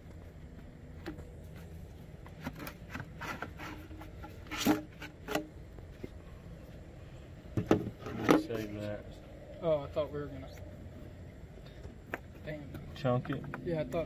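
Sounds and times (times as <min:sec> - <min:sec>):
plastic scraping against frame: 0:01.2 - 0:06.1.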